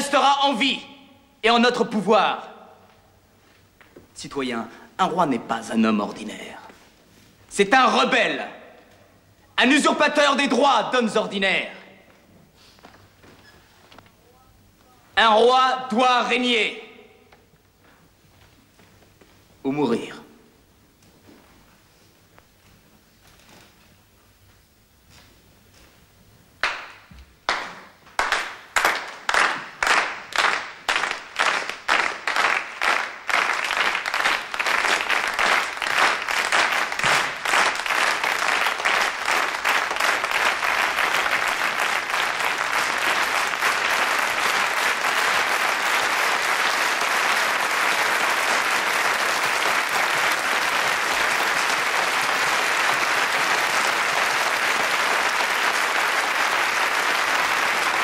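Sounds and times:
crowd applause in a hall: 26.6s - 58.0s.

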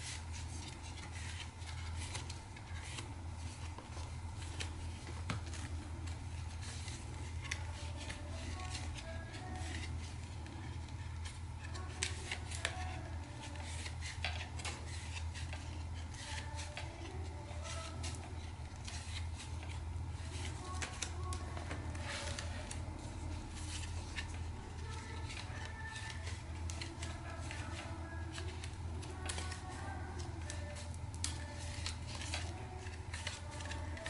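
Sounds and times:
paper pages rustling: 0.0s - 34.0s
steady low hum: 0.0s - 34.0s.

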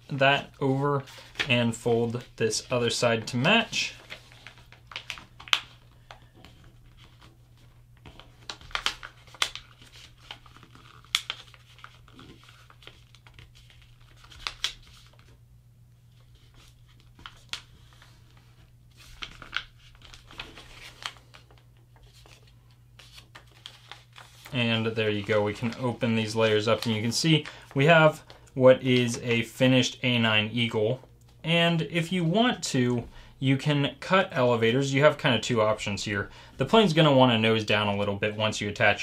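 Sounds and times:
paper crinkling and rustling: 0.4s - 15.4s, 16.1s - 29.3s.

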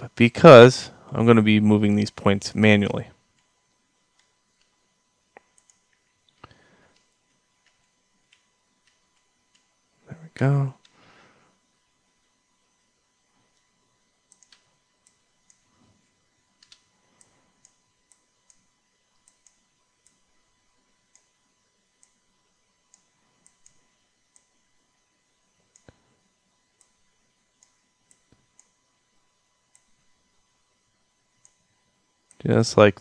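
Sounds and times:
mouse and keyboard clicks: 16.6s - 16.9s.

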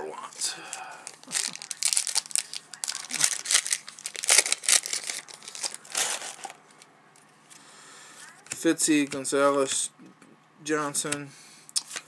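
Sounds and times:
wrapper tearing and crinkling: 1.0s - 6.6s.

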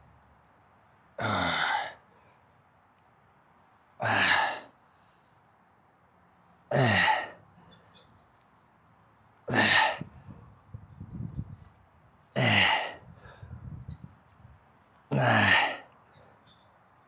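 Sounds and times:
man exhaling hard with strain: 1.2s - 2.0s, 4.0s - 4.7s.

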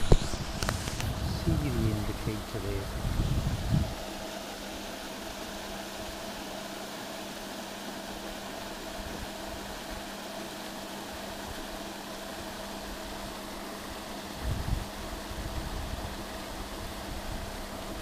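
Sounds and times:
aerator humming and hissing: 0.0s - 18.0s.

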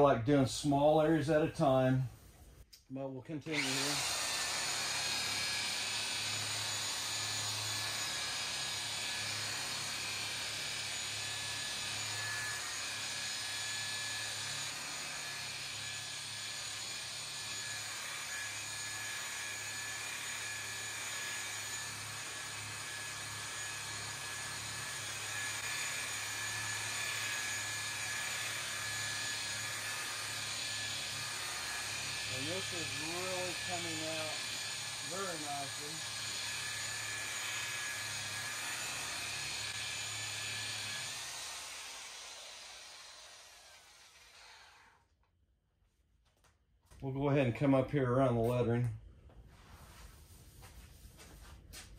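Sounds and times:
electric polisher motor whine: 3.6s - 45.0s.

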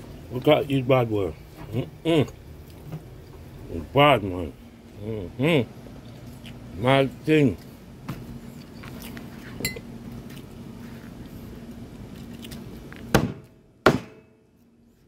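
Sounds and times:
cleaver chopping chicken: 13.1s - 14.2s.

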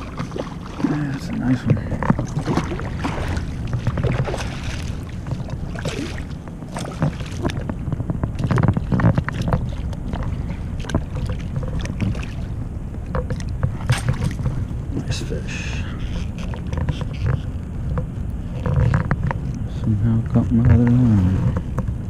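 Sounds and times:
short knocks and splashes: 0.0s - 15.2s
water around kayak: 0.0s - 22.0s
wind rumbling on microphone: 0.0s - 22.0s.

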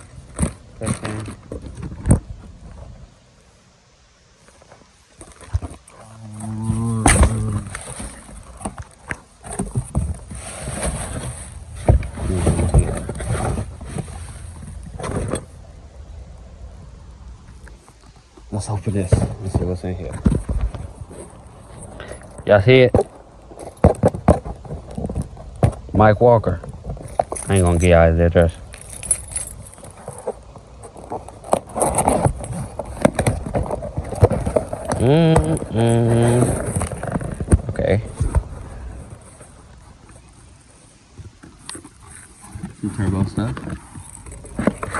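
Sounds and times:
cardboard and plastic rustling: 0.0s - 3.0s, 4.5s - 15.7s, 17.5s - 44.9s
low hum: 5.5s - 18.6s.

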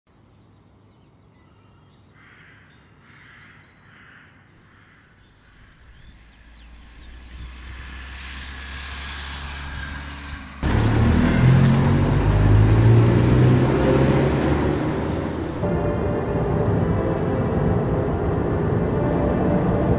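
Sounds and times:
car engine and tyres at speed: 5.5s - 19.9s
car approaching: 5.7s - 19.9s.

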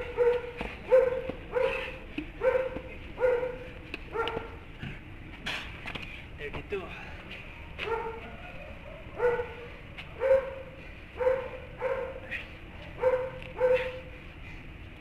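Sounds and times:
dog barking: 0.0s - 4.6s, 7.8s - 14.1s.

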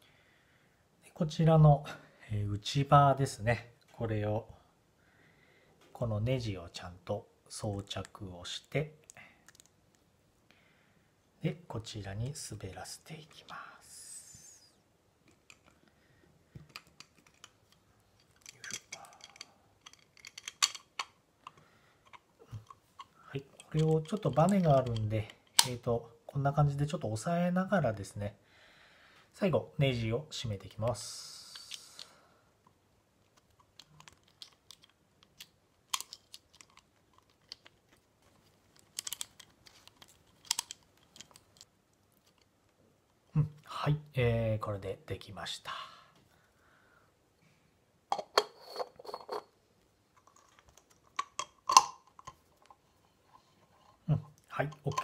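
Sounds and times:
light clicks of metal parts: 16.6s - 25.9s, 33.4s - 43.2s, 50.2s - 55.0s.

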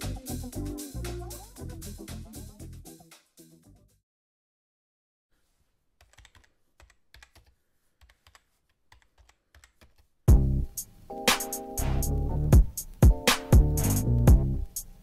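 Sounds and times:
loud music with heavy beat: 0.0s - 3.1s, 11.3s - 14.8s
keyboard typing clicks: 6.0s - 10.0s.

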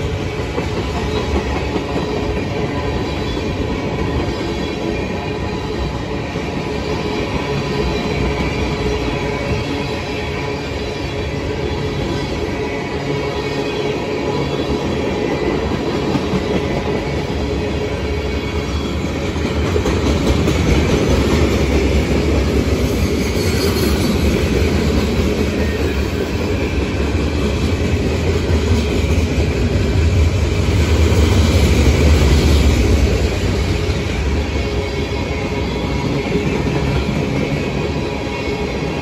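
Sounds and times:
train wheels rumbling on rails: 0.0s - 39.0s.

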